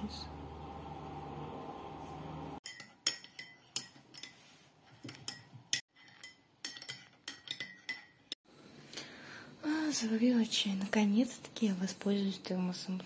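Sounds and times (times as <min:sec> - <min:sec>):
cutlery clinking against crockery: 0:02.6 - 0:08.4.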